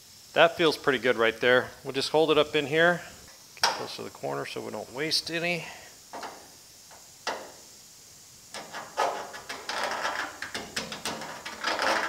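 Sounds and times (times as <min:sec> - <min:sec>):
scribe scratching sheet metal: 0:08.6 - 0:12.0.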